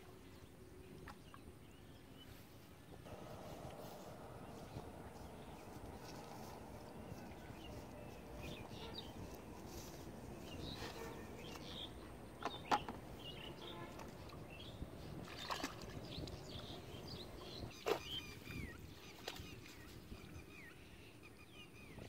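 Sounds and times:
birds chirping: 3.0 - 22.0
muddy water sloshing and splashing: 3.1 - 20.4.

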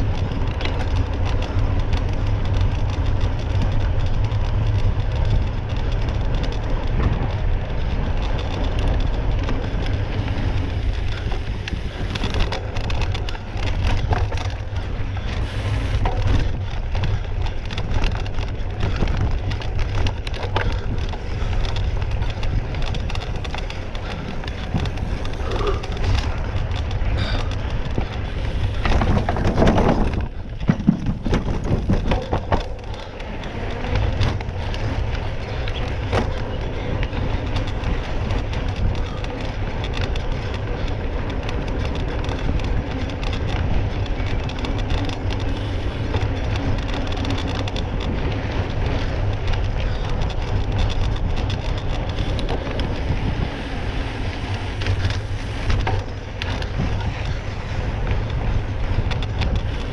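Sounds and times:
rolling rumble: 0.0 - 59.9
scattered clicks: 0.0 - 59.9
wind buffeting microphone: 0.0 - 59.9.

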